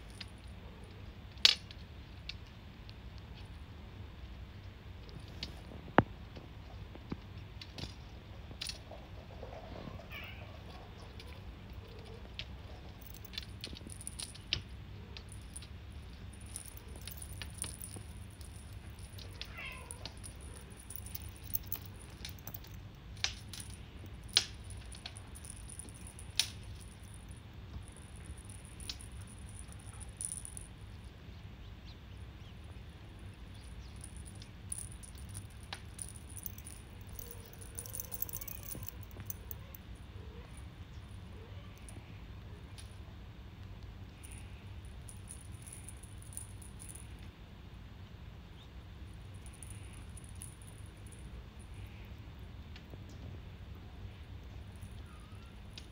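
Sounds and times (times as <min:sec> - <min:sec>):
faint kitten meow: 0:09.8 - 0:10.7, 0:19.4 - 0:20.0, 0:54.9 - 0:55.6
steady low hum: 0:11.4 - 0:55.9
beads tapping on glass: 0:13.0 - 0:30.7, 0:33.6 - 0:39.8, 0:44.2 - 0:47.1.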